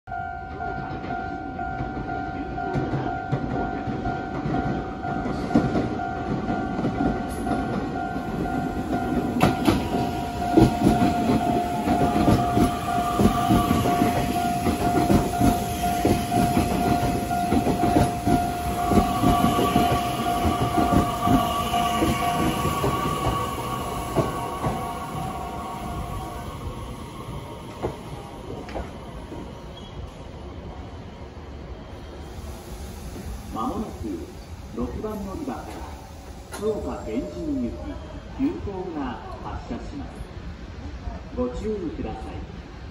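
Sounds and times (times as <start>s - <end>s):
electric train pulling in: 0.1s - 41.0s
train whine: 0.2s - 41.3s
steady high tone: 6.0s - 28.6s, 36.6s - 38.6s.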